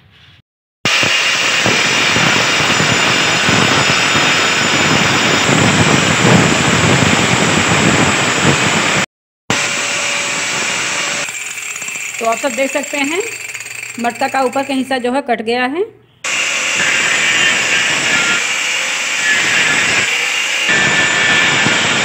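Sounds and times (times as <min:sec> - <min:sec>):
angle grinder cutting clay: 0:10.4 - 0:15.0, 0:16.3 - 0:22.0.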